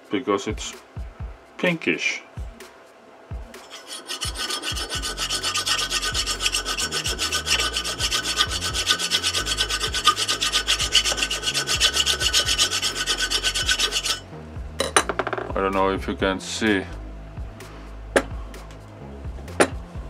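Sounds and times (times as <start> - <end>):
hand file rasping on metal: 3.6 - 14.2.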